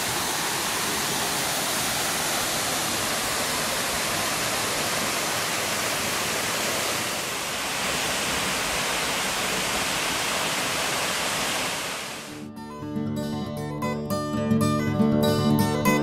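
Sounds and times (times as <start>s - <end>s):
waterfall rushing: 0.0s - 12.3s.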